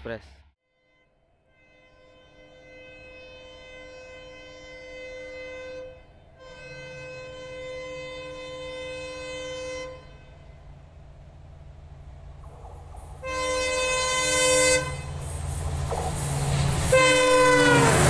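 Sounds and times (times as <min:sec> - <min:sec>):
locomotive horn blasts: 0:00.6 - 0:10.6, 0:13.2 - 0:15.2, 0:16.9 - 0:18.0
train rumbling: 0:01.5 - 0:18.0.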